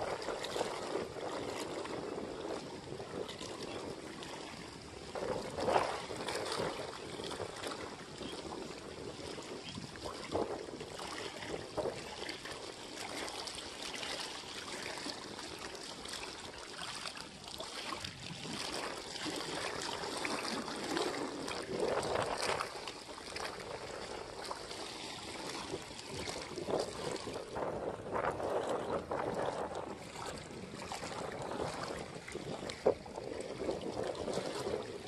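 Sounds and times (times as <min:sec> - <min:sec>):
small waves lapping against rocks: 0:00.0 - 0:35.0.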